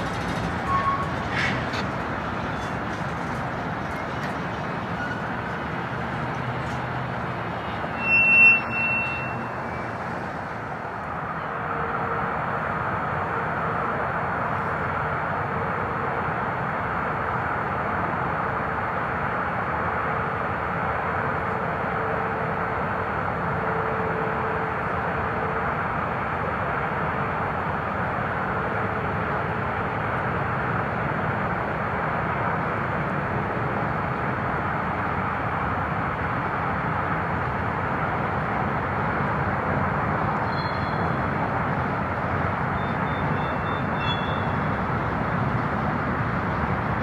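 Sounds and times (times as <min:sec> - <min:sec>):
high-pitched squeals: 0:00.0 - 0:05.7, 0:07.6 - 0:10.5
freight cars rolling on track: 0:00.0 - 0:47.0.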